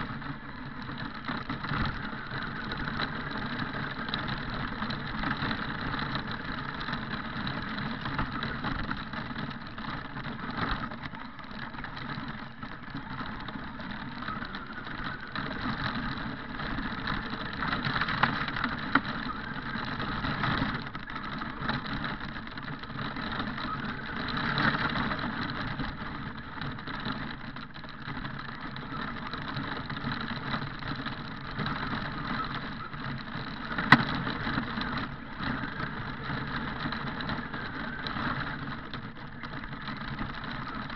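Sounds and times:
toy truck drivetrain running: 0.0s - 40.9s.

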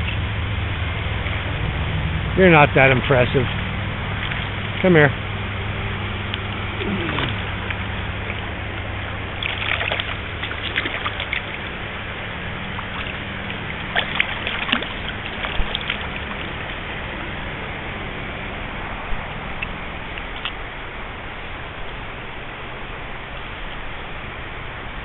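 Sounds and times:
river noise: 0.0s - 25.0s
fish splashing at water surface: 3.5s - 5.3s, 6.1s - 17.8s, 18.4s - 20.7s.

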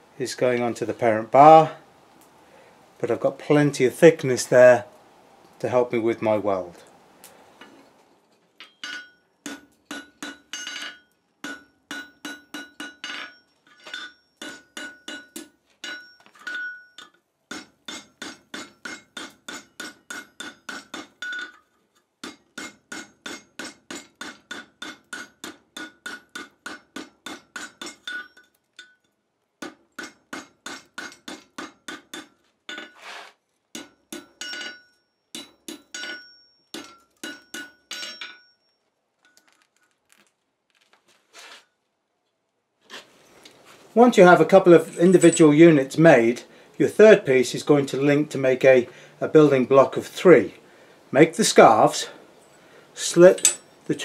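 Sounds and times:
anvil ringing: 8.6s - 21.6s, 22.2s - 29.1s, 33.8s - 38.8s, 53.2s - 53.8s
hammer striking metal on anvil: 8.6s - 21.6s, 22.2s - 33.0s, 33.7s - 38.6s, 53.3s - 53.8s.

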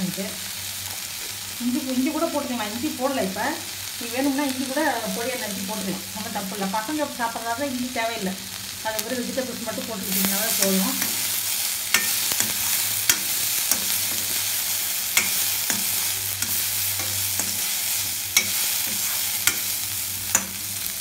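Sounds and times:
vegetables sizzling in oil: 0.0s - 21.0s
spatula scraping and clinking pan: 11.9s - 20.7s.

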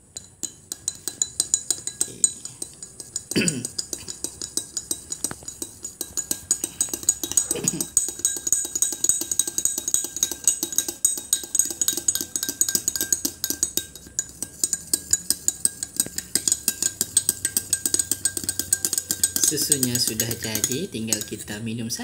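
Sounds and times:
spoon clinking against glass: 0.0s - 21.8s.

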